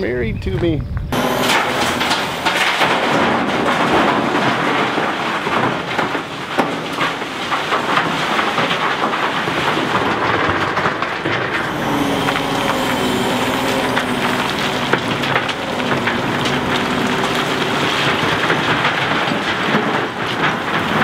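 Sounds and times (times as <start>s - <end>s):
diesel engines running: 1.1s - 6.7s, 11.2s - 21.0s
stones clattering into steel bed: 1.5s - 21.0s.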